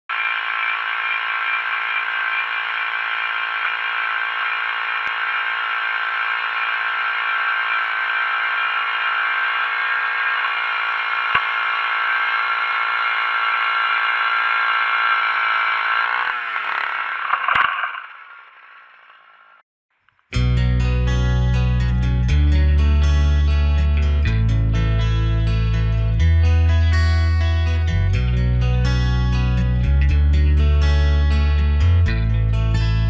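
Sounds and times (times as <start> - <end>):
ice auger motor whining: 0.1 - 19.6.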